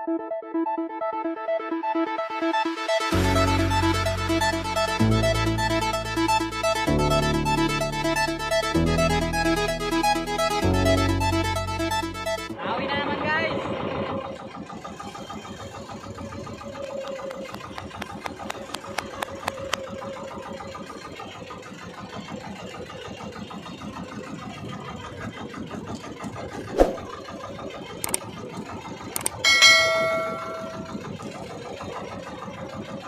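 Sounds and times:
boat engine running: 0:03.1 - 0:33.0
short chiming tone: 0:29.4 - 0:31.2.

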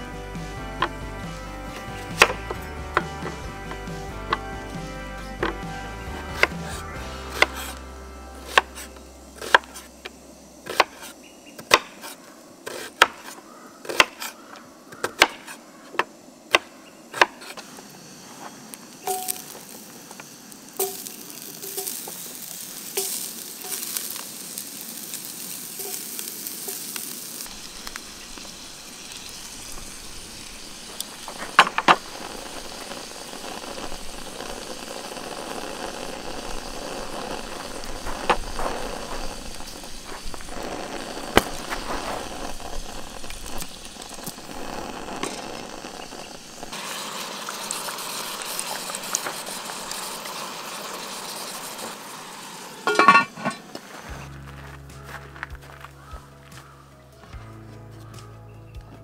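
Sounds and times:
food sizzling in hot pan: 0:05.6 - 0:13.3, 0:17.4 - 0:54.2.

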